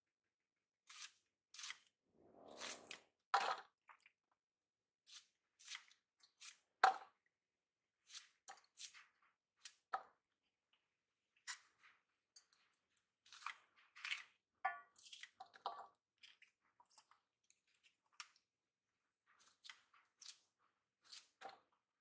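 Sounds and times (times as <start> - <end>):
knife cutting bamboo: 0.9 - 1.9.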